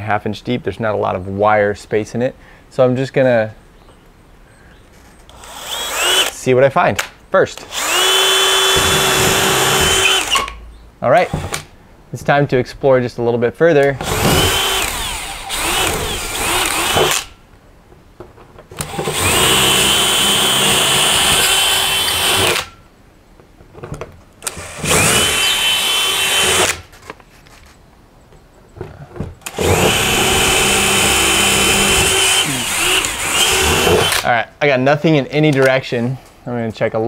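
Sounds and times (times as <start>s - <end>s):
cordless drill whining: 5.3s - 6.4s, 7.6s - 10.6s, 11.2s - 11.7s, 14.0s - 17.4s, 18.8s - 22.8s, 24.4s - 26.9s, 29.4s - 34.3s.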